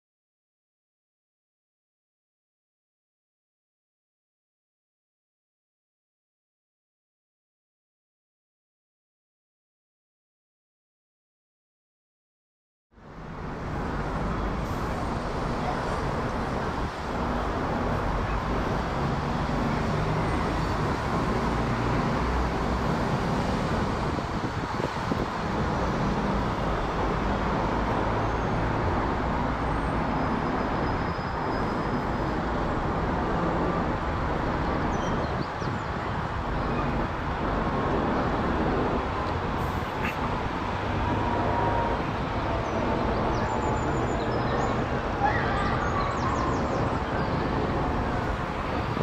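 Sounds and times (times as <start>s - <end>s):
jet engines roaring overhead: 35.6s - 49.0s.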